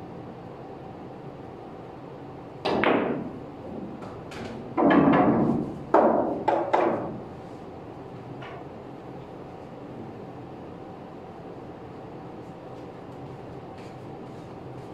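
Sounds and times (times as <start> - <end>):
cue striking ball: 2.6 - 3.4, 4.0 - 7.2
pool balls clacking: 2.6 - 7.2.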